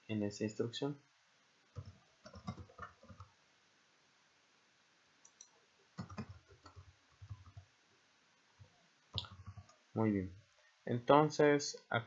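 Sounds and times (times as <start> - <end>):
keyboard typing: 1.7 - 3.3, 5.3 - 7.7, 8.6 - 9.8.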